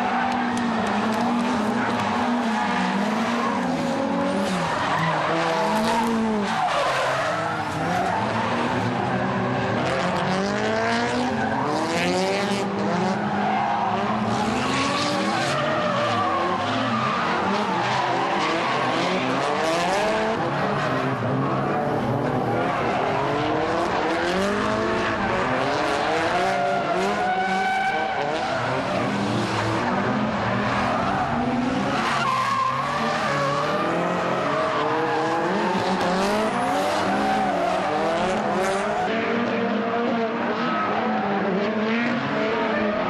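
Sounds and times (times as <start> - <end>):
car engines revving hard: 0.0 - 43.0
tyres squealing on tarmac: 4.4 - 9.5, 13.2 - 19.6, 30.4 - 38.0.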